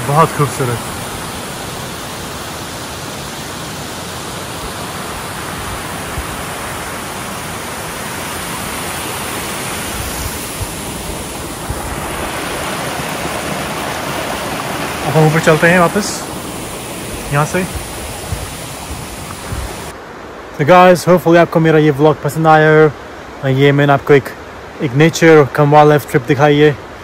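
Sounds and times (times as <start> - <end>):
water rushing over rocks: 0.0 - 20.0.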